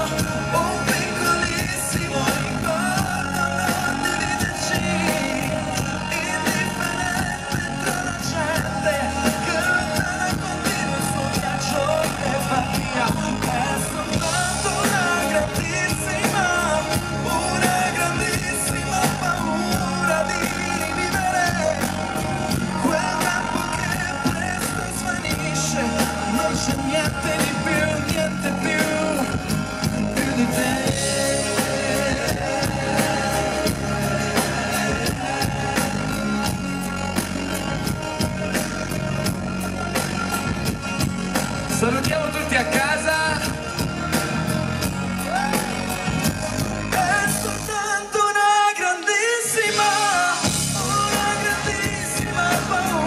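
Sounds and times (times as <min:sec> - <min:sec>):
steady drum beat: 0:00.0 - 0:47.9, 0:49.6 - 0:53.0
guitar: 0:00.0 - 0:53.0
keyboards: 0:00.0 - 0:53.0
person singing: 0:00.0 - 0:53.0.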